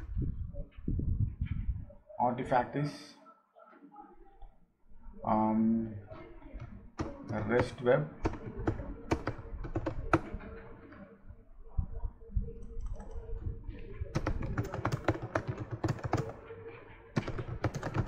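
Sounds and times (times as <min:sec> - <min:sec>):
typing on computer keyboard: 0:06.6 - 0:10.5, 0:14.1 - 0:16.6, 0:17.2 - 0:18.0.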